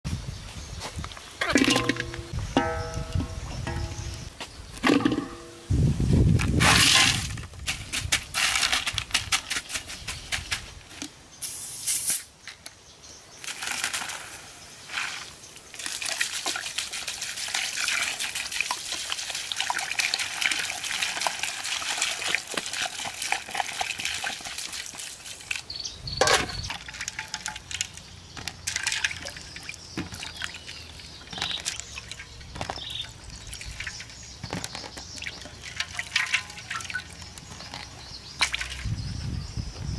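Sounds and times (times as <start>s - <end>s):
ice cubes clattering into wok: 26.2s - 29.5s, 35.2s - 37.8s.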